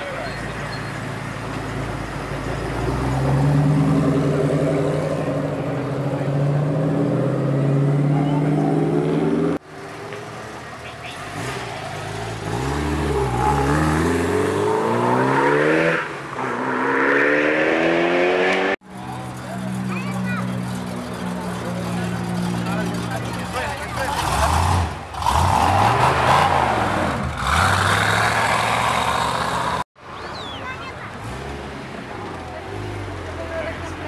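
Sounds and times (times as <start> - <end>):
car accelerating hard: 11.2 - 18.8.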